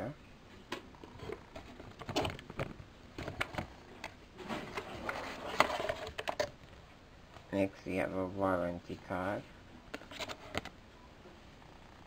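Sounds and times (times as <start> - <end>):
cardboard box rustling and scraping: 4.4 - 6.2.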